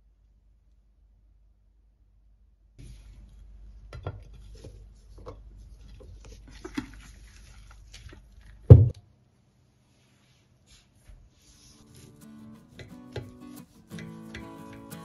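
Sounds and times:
heavy thud on wooden board: 8.7 - 8.9.

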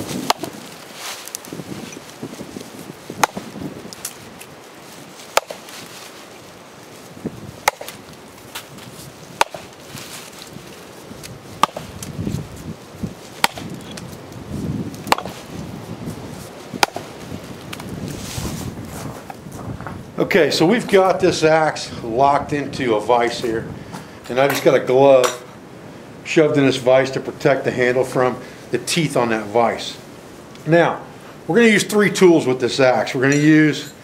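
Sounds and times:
axe chopping into log: 0.2 - 0.6, 3.2 - 4.2, 5.3 - 5.7, 7.6 - 8.7, 9.3 - 9.8, 11.6 - 12.2, 13.4 - 14.0, 15.0 - 15.4, 16.8 - 17.1.

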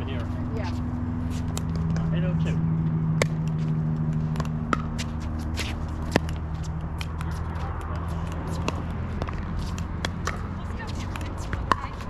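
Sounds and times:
paddles hitting plastic ball: 3.2 - 12.0.

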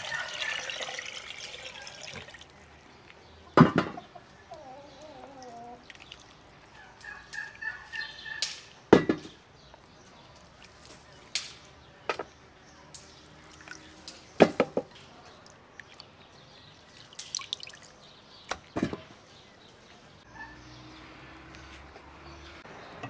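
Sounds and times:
water dripping: 0.0 - 3.2, 5.2 - 7.5, 13.0 - 14.4, 15.4 - 16.2, 16.9 - 18.0.

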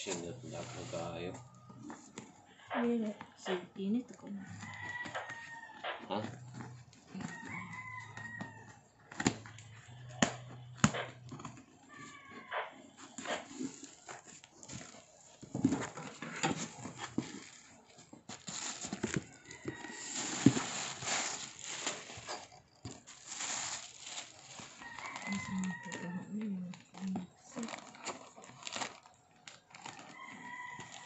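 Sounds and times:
packaging crinkling and rustling: 0.0 - 2.2, 13.0 - 31.0.

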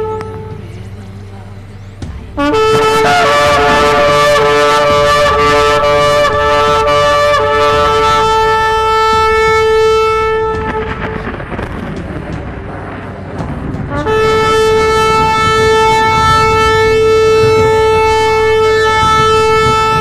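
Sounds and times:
trumpet blast: 0.0 - 0.7, 2.3 - 20.0.

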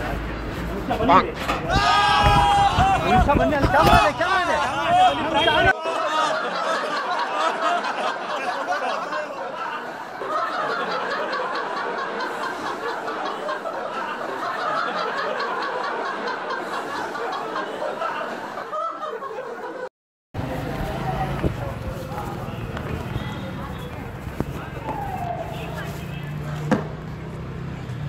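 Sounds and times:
people laughing: 0.8 - 19.9.

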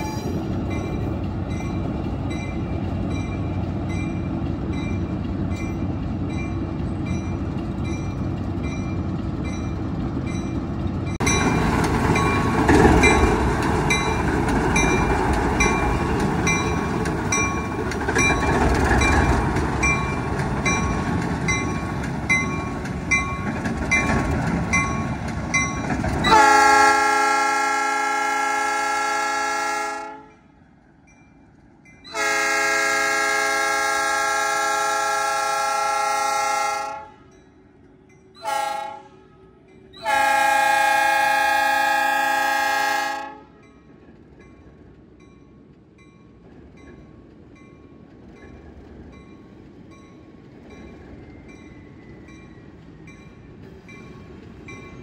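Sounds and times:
locomotive bell ringing: 0.0 - 26.7
diesel locomotive engine running: 0.0 - 55.0
locomotive air horn: 26.3 - 30.4, 32.1 - 37.3, 38.4 - 43.6.

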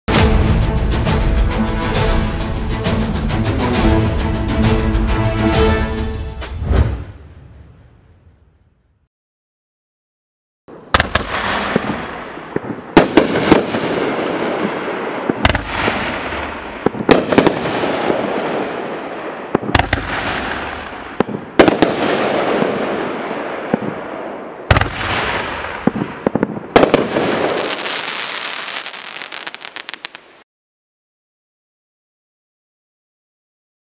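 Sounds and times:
firework bangs: 10.7 - 30.4
firework crackling: 10.7 - 30.4
firework hiss: 27.0 - 30.4.

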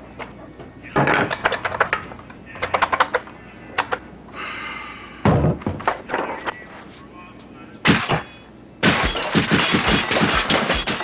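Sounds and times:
nail gun firing: 8.8 - 11.0.

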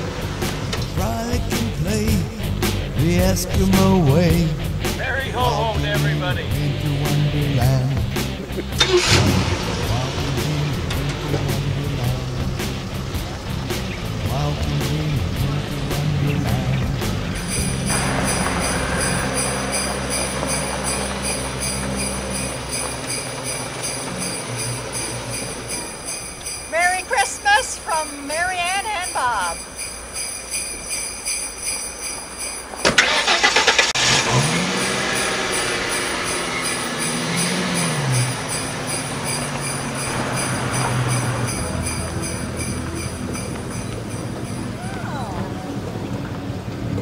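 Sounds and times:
low engine hum: 0.0 - 27.2, 28.6 - 47.0
christmas music: 0.0 - 46.2
jingle bells shaking: 17.3 - 33.8, 34.4 - 45.0.

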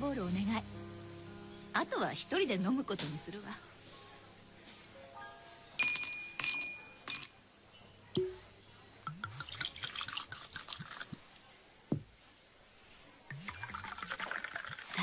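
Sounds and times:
glass ringing: 5.8 - 7.4
ice cubes clinking in glass: 5.8 - 7.4, 13.4 - 15.0
liquid pouring and glugging: 9.0 - 11.2, 13.3 - 15.0.

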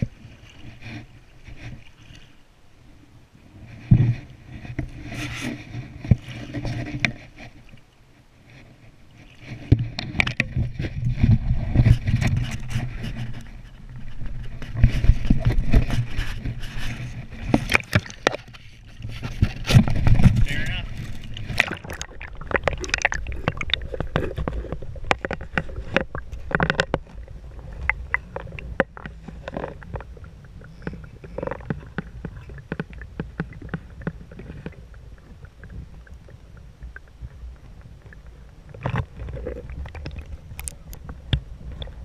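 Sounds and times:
muffled underwater river rumble: 0.0 - 42.0
sharp clicks and knocks: 17.4 - 27.2.

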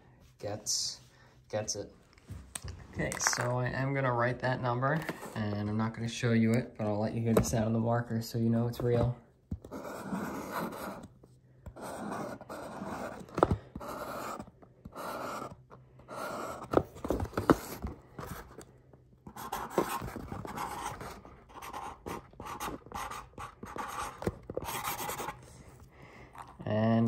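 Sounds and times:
marker pen writing: 9.6 - 11.1, 11.7 - 18.6, 19.3 - 25.5.

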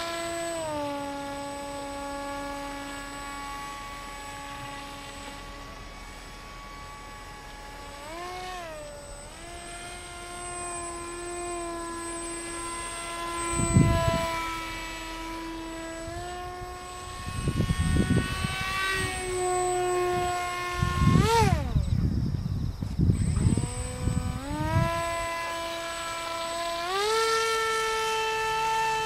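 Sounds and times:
model plane motor whining: 0.0 - 29.0
wind buffeting microphone: 11.0 - 25.7.

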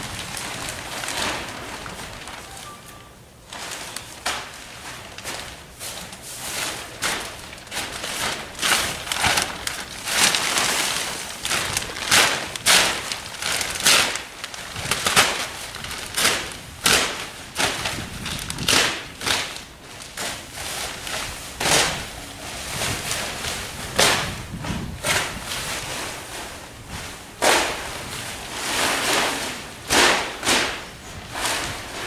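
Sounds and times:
plastic sheet rustling and crackling: 0.0 - 32.0.

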